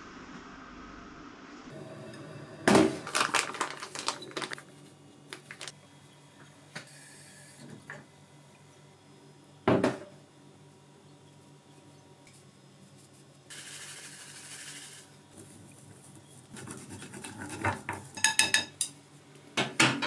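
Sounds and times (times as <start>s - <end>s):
chopsticks stirring batter in bowl: 15.4s - 18.0s.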